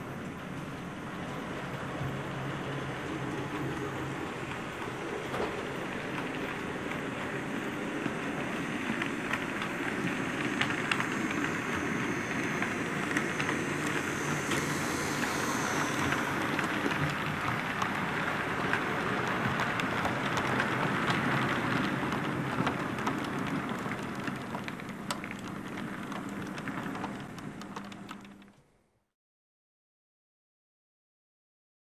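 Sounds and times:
faint motor hum: 0.0 - 28.6
model train wheels clicking: 3.0 - 24.6.

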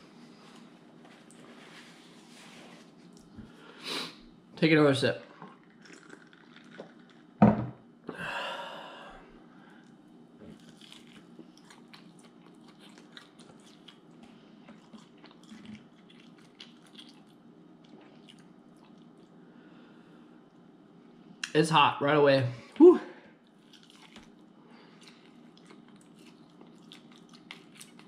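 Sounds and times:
person chewing: 5.4 - 7.3, 9.8 - 19.4, 23.4 - 28.0.

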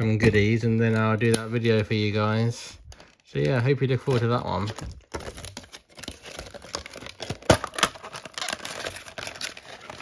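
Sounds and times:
plastic packaging crinkling: 2.8 - 10.0.

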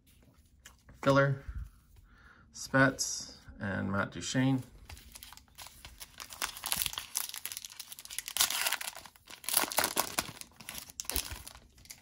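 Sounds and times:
foil wrapper tearing and crinkling: 5.1 - 12.0.

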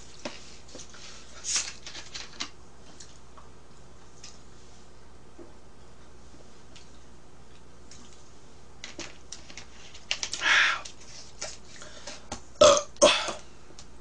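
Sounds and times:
woman burping: 12.6 - 13.4.

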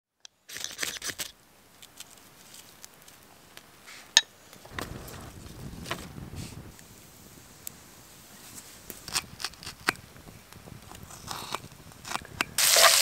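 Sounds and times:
campfire crackling and snapping: 0.5 - 13.0
low rushing of flames: 4.4 - 13.0.

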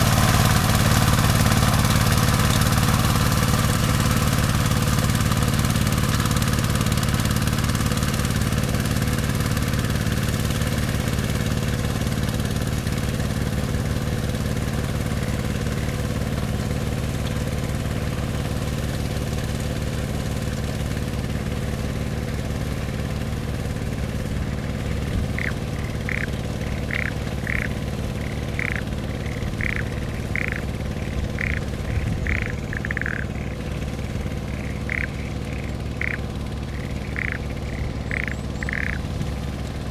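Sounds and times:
tiller engine running: 0.0 - 39.9
short high calls: 34.5 - 39.0.

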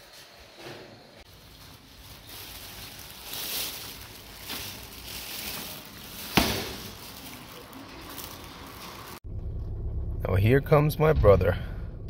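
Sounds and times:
soft rustling: 1.2 - 9.2.

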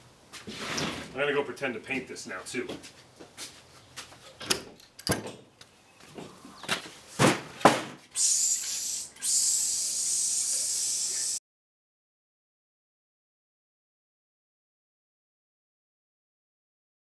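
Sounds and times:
paint spray gun hissing: 8.2 - 11.4.

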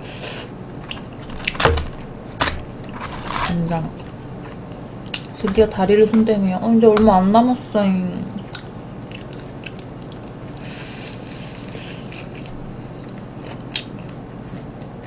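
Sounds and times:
crackly crunch: 0.8 - 7.2, 8.4 - 10.7, 11.9 - 15.0
person chewing chicken: 4.0 - 5.3, 8.4 - 15.0.

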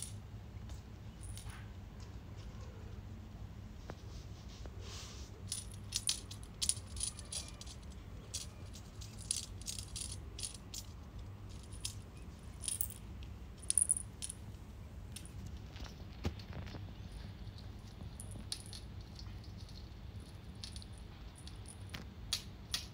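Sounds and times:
toy rattling on glass table: 5.5 - 12.0.

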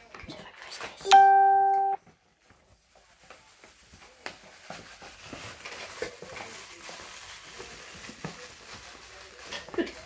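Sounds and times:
paper bag rustling: 2.3 - 10.0.

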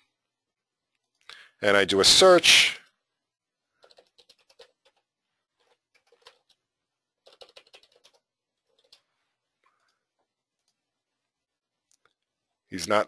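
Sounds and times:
computer keyboard typing: 3.8 - 10.8.

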